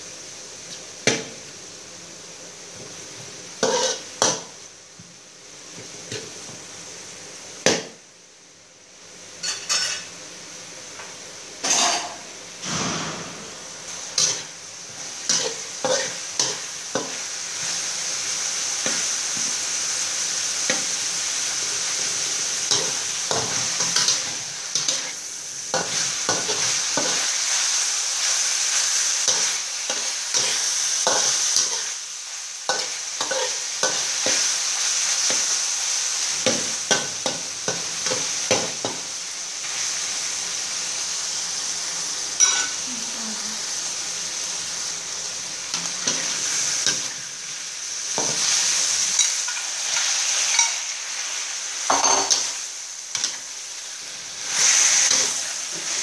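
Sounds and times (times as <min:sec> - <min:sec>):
meat sizzling in a wok: 0:00.0 - 0:56.0
spatula scraping a pan: 0:03.6 - 0:04.0, 0:09.4 - 0:10.0, 0:14.1 - 0:17.2
sharp knock: 0:12.7 - 0:13.6.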